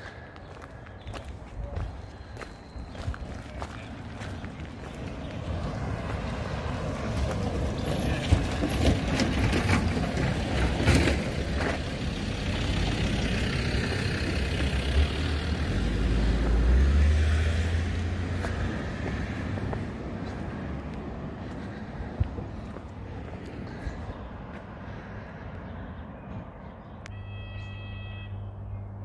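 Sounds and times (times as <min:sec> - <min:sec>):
car driving past: 0:04.5 - 0:26.6.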